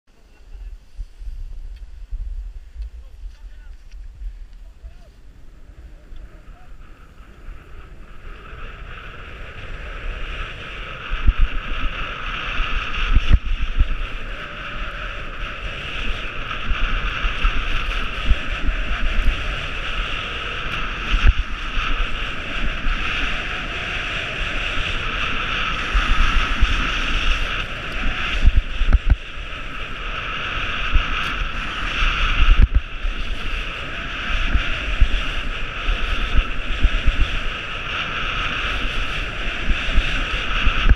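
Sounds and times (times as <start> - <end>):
wind buffeting microphone: 0.1 - 40.9
skis scraping over snow: 0.2 - 40.9
low gusty thumps: 1.0 - 5.6, 24.7 - 30.0, 30.7 - 33.6.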